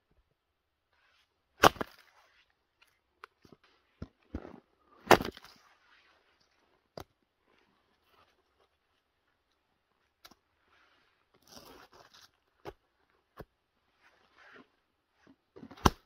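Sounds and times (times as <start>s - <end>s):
axe chopping firewood: 1.6s - 2.1s, 4.0s - 5.5s, 15.6s - 16.0s.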